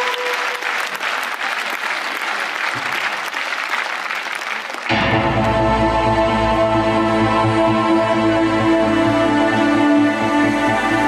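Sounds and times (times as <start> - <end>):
audience applauding: 0.0 - 5.0
synthesizer chord with deep bass: 4.9 - 11.0.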